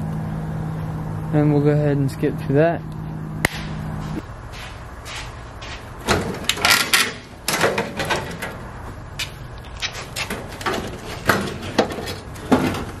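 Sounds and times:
sheet metal scraping and clanking: 6.0s - 8.6s, 9.7s - 13.0s.

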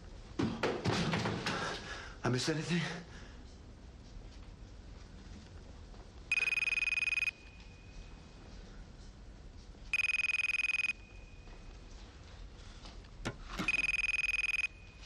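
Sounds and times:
telephone ringing: 6.3s - 7.6s, 9.9s - 11.2s, 13.6s - 15.0s.

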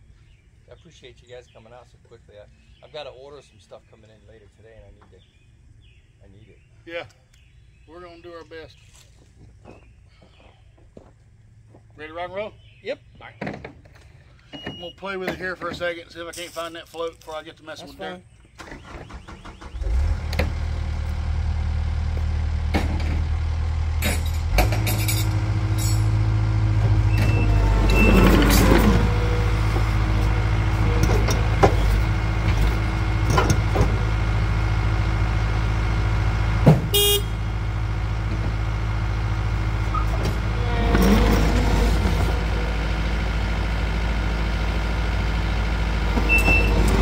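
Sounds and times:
diesel engine running: 18.7s - 47.0s.

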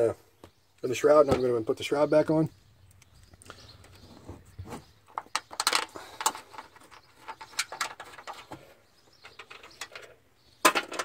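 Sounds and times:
plastic rattling against metal: 5.1s - 8.6s, 9.2s - 11.0s.

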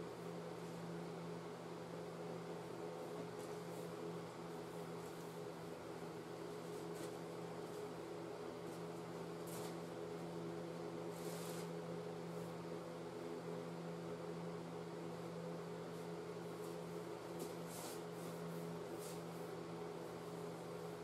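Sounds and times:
cloth swishing over plastic: 3.0s - 5.6s, 6.3s - 10.3s, 11.0s - 12.6s, 15.9s - 21.0s.

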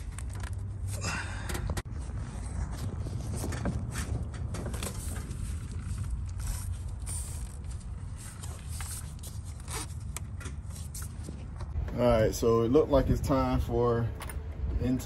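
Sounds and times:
steady low rumble: 11.5s - 15.0s.

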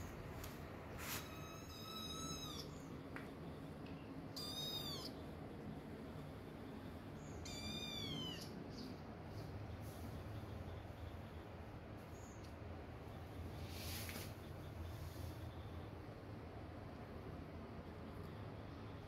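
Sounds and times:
kittens meowing: 1.2s - 2.9s, 4.3s - 5.2s, 7.3s - 8.6s.

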